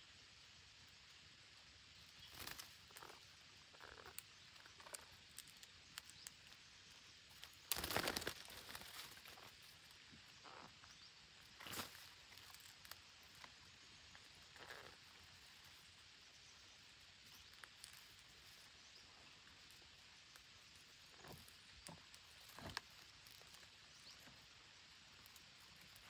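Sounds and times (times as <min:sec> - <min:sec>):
faint outdoor hiss: 0:00.0 - 0:26.0
soft rustles and clicks: 0:02.2 - 0:15.9.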